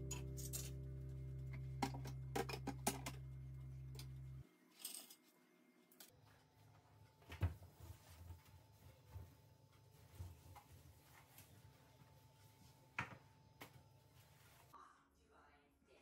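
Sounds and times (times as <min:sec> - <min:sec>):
low music chord: 0:00.0 - 0:04.4
kitchenware clicking and clinking: 0:01.8 - 0:03.2.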